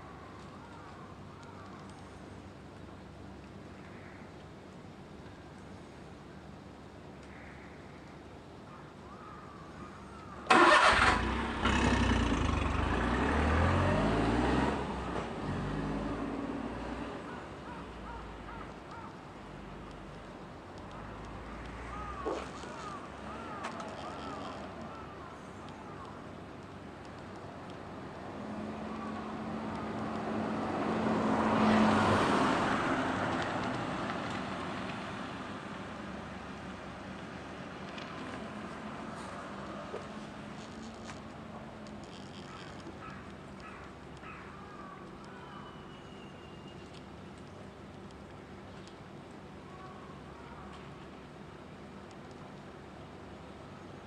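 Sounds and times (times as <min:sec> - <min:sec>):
vehicle engine starting and revving: 0:10.5 - 0:16.4
car driving past: 0:10.5 - 0:17.2, 0:30.3 - 0:35.3.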